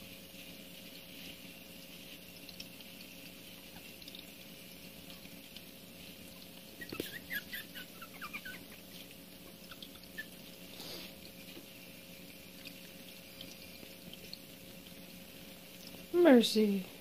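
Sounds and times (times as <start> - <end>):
puppy squeaking: 6.8 - 8.8.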